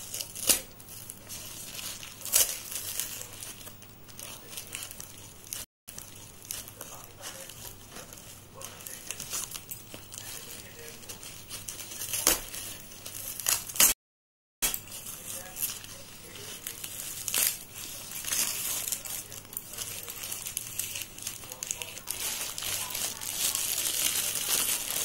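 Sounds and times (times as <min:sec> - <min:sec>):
scissors cutting tape and cardboard: 0:00.0 - 0:05.0, 0:11.1 - 0:13.9
tape and plastic wrap crinkling: 0:00.0 - 0:14.0, 0:14.6 - 0:25.0.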